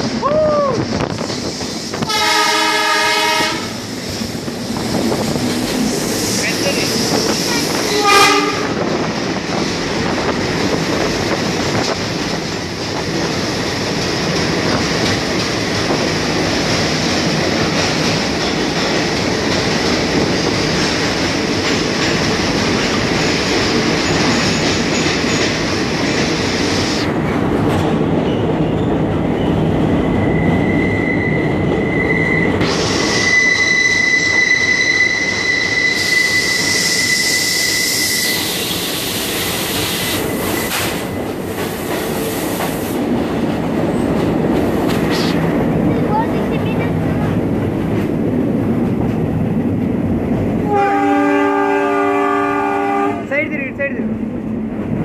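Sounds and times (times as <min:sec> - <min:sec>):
train wheels rumbling in tunnel: 0:00.0 - 0:55.0
train horn blast: 0:02.0 - 0:03.8, 0:07.8 - 0:08.8, 0:50.6 - 0:53.3
high-pitched wheel squeal: 0:30.2 - 0:39.0.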